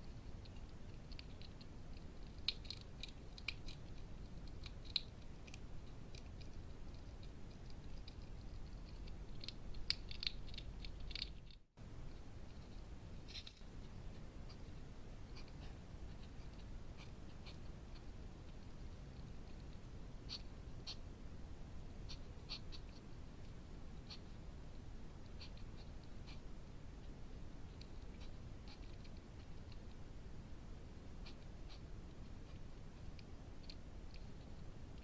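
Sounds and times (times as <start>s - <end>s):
hedgehog crunching food: 0.1s - 11.6s.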